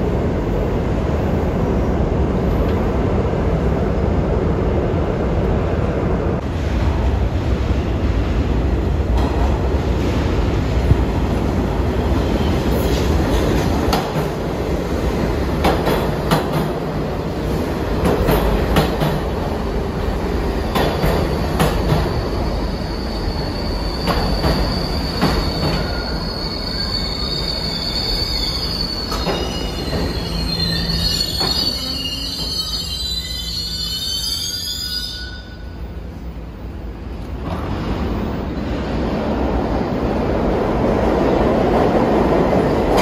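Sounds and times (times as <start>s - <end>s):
subway train rumble: 0.0s - 43.0s
high brake squeal: 21.9s - 35.9s.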